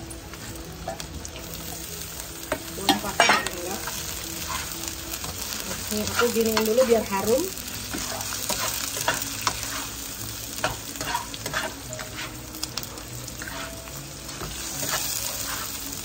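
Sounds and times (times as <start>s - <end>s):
vegetables sizzling in oil: 0.0s - 16.0s
spatula scraping and tapping pan: 10.6s - 12.4s, 13.4s - 15.7s.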